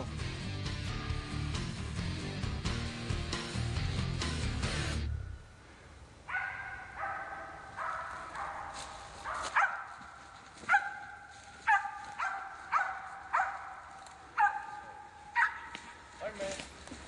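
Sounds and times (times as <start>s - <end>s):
dog barking: 6.3s - 15.8s.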